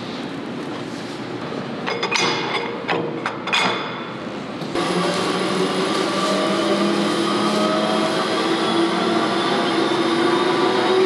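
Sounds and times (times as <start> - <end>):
machine hum with whine: 4.6 - 11.0.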